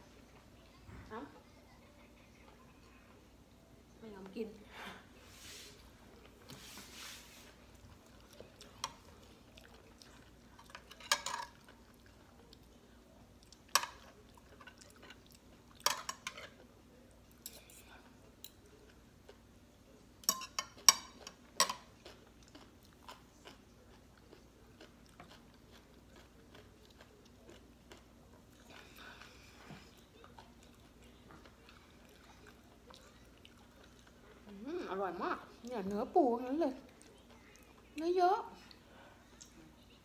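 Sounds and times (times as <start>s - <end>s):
person chewing: 7.5s - 15.9s, 20.8s - 34.4s
cutlery clinking on a plate: 10.6s - 11.7s, 13.7s - 14.7s, 15.8s - 16.6s, 20.2s - 21.9s.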